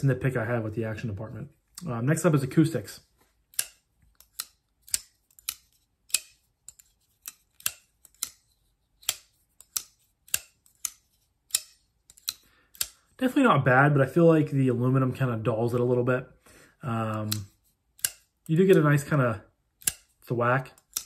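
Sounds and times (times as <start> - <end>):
folding knife snapping open and shut: 3.5 - 13.0, 17.3 - 18.3, 19.8 - 20.1, 20.8 - 21.0.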